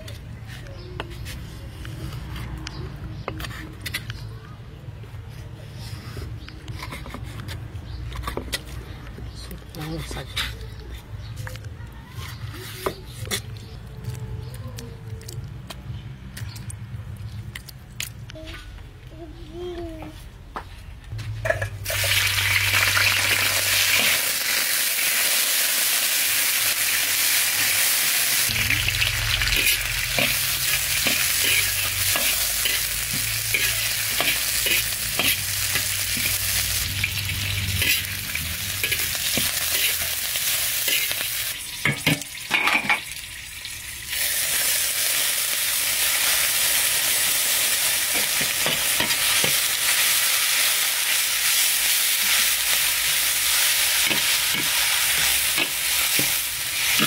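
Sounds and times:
food sizzling in hot oil: 21.8 - 57.0.

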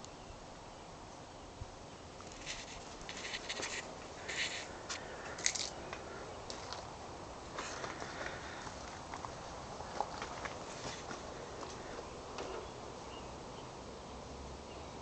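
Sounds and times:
faint background hiss: 0.0 - 15.0
footsteps crunching on gravel: 2.4 - 6.9, 7.5 - 12.7.

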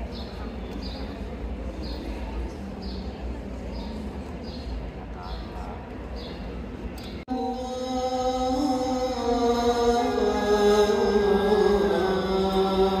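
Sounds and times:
person chanting long notes: 7.3 - 13.0.

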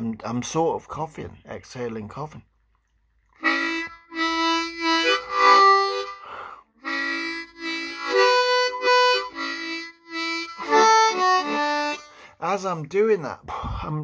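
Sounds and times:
harmonica playing held notes: 3.4 - 12.4
breathy exhale: 6.2 - 6.7.

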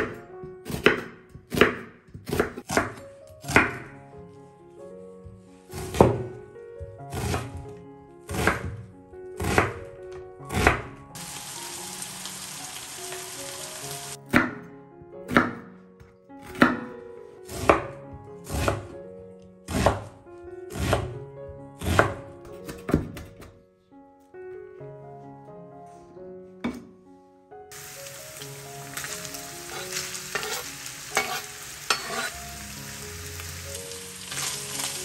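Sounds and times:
knife chopping onion on board: 0.0 - 3.9, 5.7 - 6.3, 7.1 - 7.6, 8.3 - 8.8, 9.4 - 9.8, 10.5 - 10.9, 14.3 - 14.6, 15.3 - 15.7, 16.4 - 16.9, 17.5 - 18.9, 19.7 - 21.2, 21.8 - 23.5, 29.7 - 32.3
soft background music: 0.0 - 35.0.

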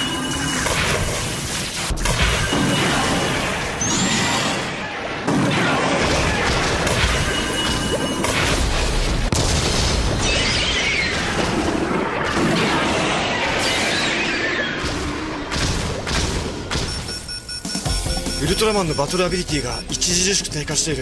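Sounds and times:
heavy booms and crashing impacts: 8.5 - 13.3
background music: 16.8 - 21.0.

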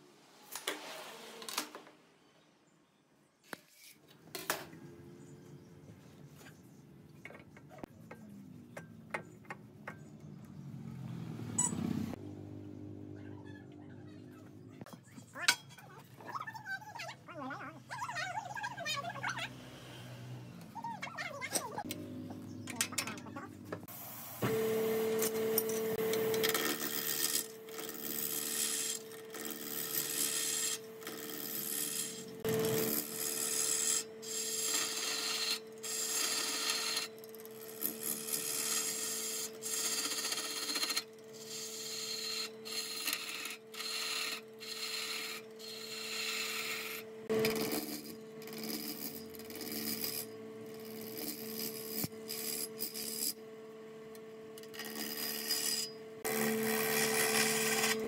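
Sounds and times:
wood lathe humming: 24.5 - 53.3, 54.7 - 58.0
turning tool scraping wood: 25.9 - 53.4, 54.6 - 58.0.

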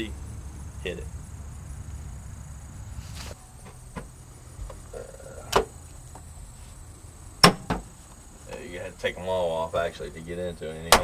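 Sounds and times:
sharp knock on metal cover: 7.4 - 7.9.

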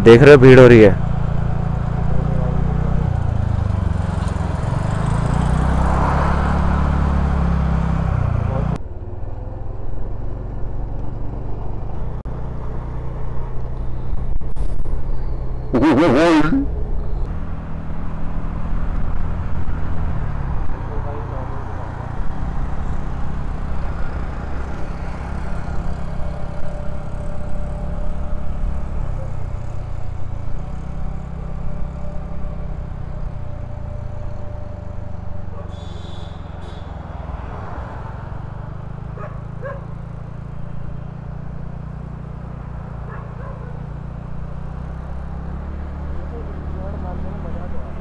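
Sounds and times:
faint street sounds: 0.0 - 48.0
road noise: 0.0 - 48.0.

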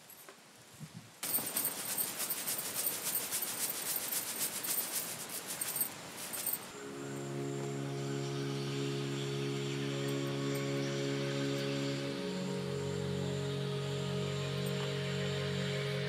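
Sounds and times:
powdered earth pouring onto stone: 1.2 - 6.7
music: 6.8 - 16.0.

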